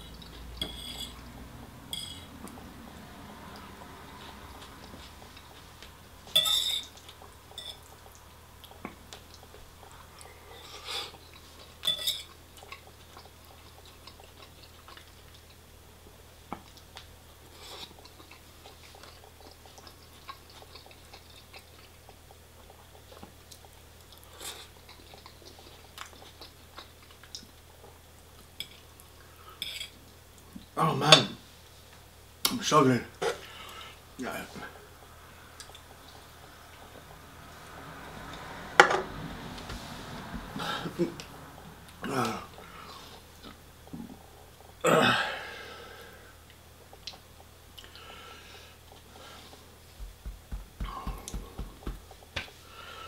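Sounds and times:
low steady hum: 0.0s - 53.0s
cutlery clinking on a plate: 0.6s - 1.2s, 1.9s - 2.3s, 6.3s - 6.9s, 11.8s - 12.3s
person chewing: 6.8s - 15.7s, 16.6s - 30.7s, 35.6s - 37.0s, 46.5s - 48.1s, 50.8s - 52.6s.

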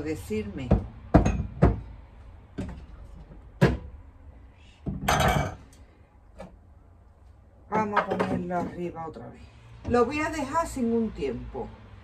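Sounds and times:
glass jars knocking on counter: 1.1s - 1.8s, 4.9s - 5.6s.

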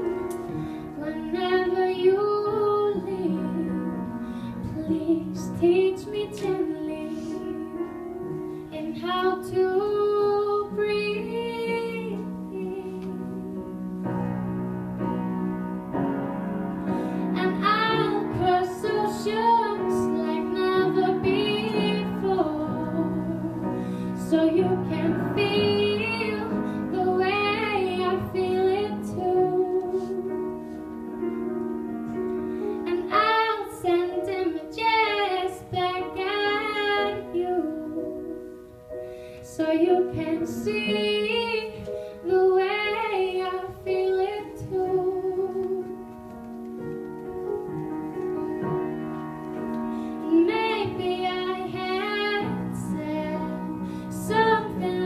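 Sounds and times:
woman singing slow song: 0.9s - 13.8s, 17.3s - 30.6s, 32.8s - 38.5s, 39.5s - 46.1s, 50.2s - 55.0s.

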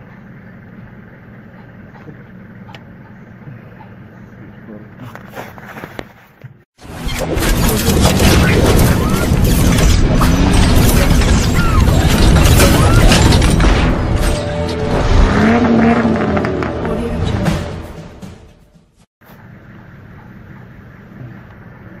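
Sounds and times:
sports car engine revving: 15.3s - 17.4s.

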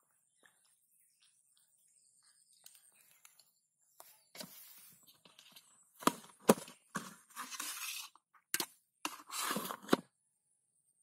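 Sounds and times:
scraping and rustling: 4.4s - 8.2s, 9.1s - 10.1s.

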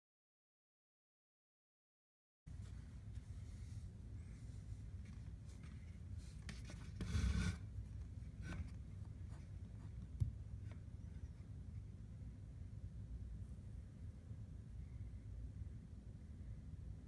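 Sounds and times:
fingers rubbing caulk: 6.5s - 7.7s.

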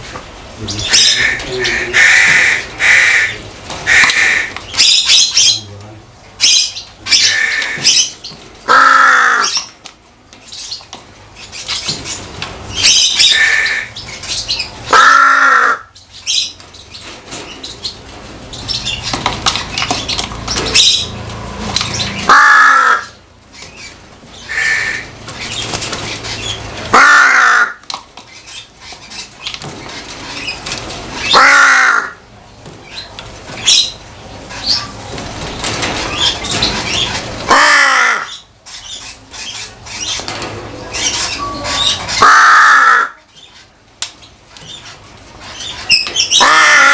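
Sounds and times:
crow cawing: 1.0s - 4.6s, 8.7s - 9.6s, 14.9s - 15.9s, 22.3s - 23.2s, 24.5s - 25.1s, 26.9s - 27.8s, 31.3s - 32.2s, 37.5s - 38.4s, 42.2s - 43.2s, 46.3s - 46.9s.

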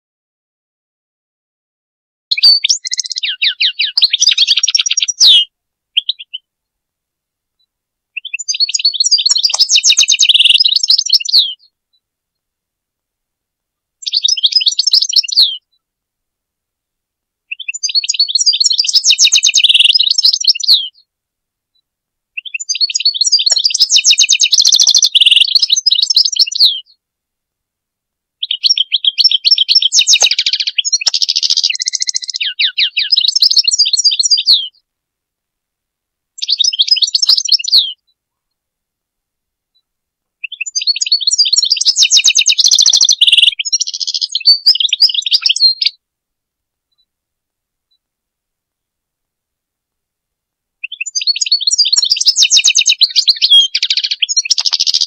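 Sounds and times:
finch twittering song: 2.3s - 6.5s, 8.2s - 11.7s, 14.0s - 15.7s, 17.5s - 21.0s, 22.4s - 27.0s, 28.4s - 34.8s, 36.4s - 38.1s, 40.4s - 46.0s, 50.8s - 55.0s.

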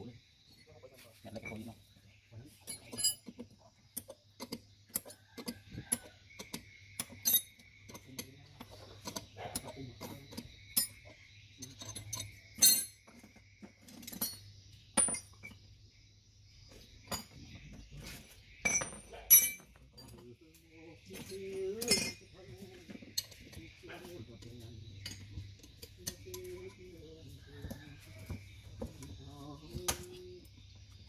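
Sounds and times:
metal parts clinking on workbench: 2.6s - 11.0s, 11.6s - 13.1s, 13.9s - 15.6s, 18.6s - 20.2s, 21.2s - 22.3s.

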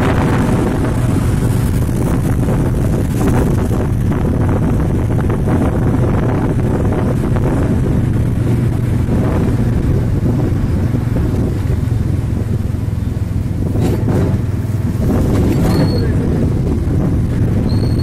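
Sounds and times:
vehicle rumble at speed: 0.0s - 18.0s.

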